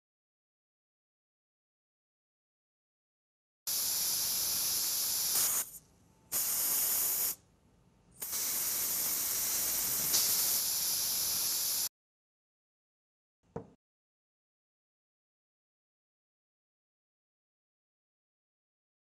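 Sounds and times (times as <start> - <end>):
aerosol can hissing: 3.7 - 7.4, 8.2 - 11.9.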